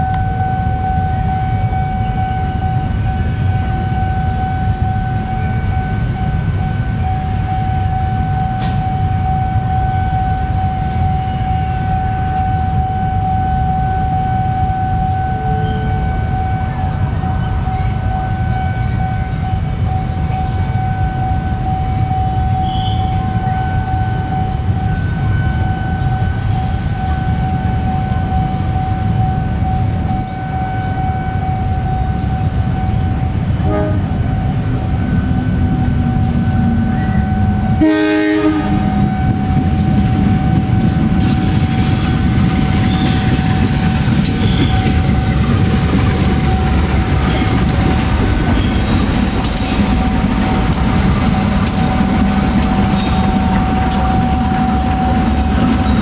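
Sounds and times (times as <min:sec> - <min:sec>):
diesel locomotive engine rumbling: 0:00.0 - 0:56.0
train horn blast: 0:00.0 - 0:56.0
wheels clicking over rail joints: 0:39.3 - 0:56.0.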